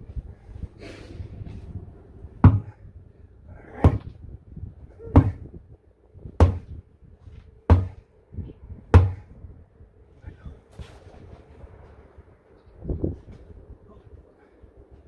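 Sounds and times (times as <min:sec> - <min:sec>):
sledgehammer blows on tyre rim: 0:02.4 - 0:02.8, 0:03.8 - 0:04.2, 0:05.1 - 0:05.5, 0:06.4 - 0:06.8, 0:07.7 - 0:08.0, 0:09.0 - 0:09.3.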